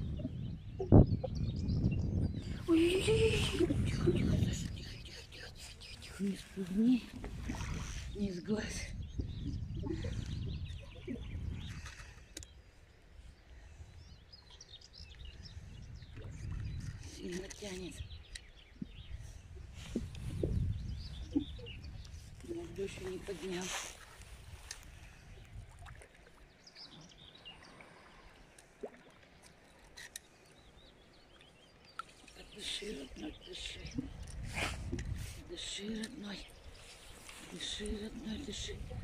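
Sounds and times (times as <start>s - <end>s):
wind rumble on microphone: 0.0s - 12.5s, 13.2s - 26.0s, 32.4s - 39.0s
small birds chirping: 0.0s - 39.0s.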